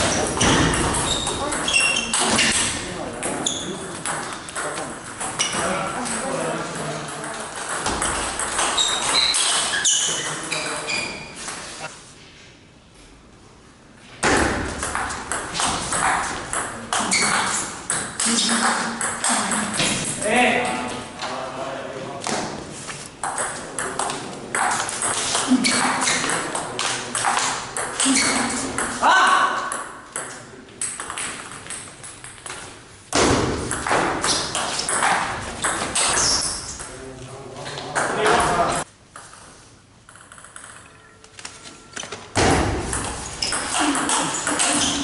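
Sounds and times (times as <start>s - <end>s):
table tennis ball clicks: 40.1s - 41.0s.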